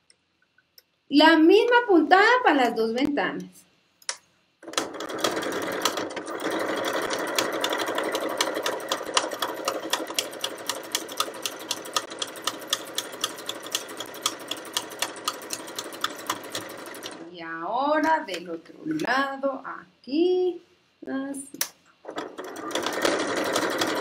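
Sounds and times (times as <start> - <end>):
sewing machine running: 4.6 - 17.3, 22.0 - 24.0.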